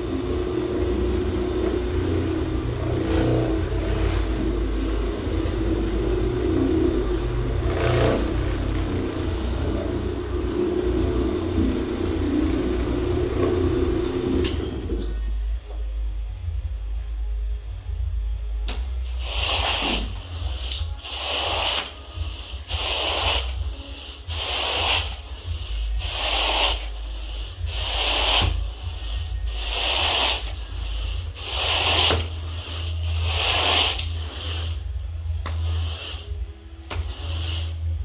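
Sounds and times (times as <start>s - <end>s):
carpet rake brushing scrape: 0.0s - 15.1s, 19.1s - 34.9s, 35.5s - 37.9s.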